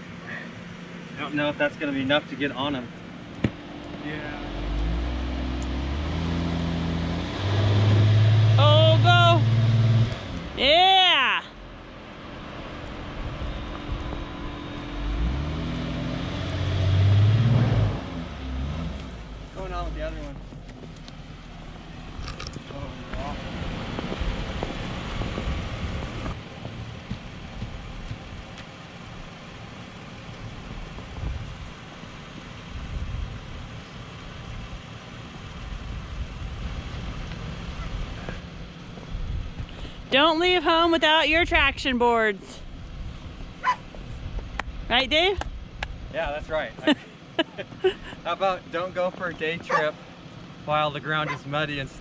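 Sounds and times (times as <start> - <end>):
van engine revving: 0.0 - 46.8, 47.4 - 52.0
wind buffeting microphone: 22.1 - 28.5.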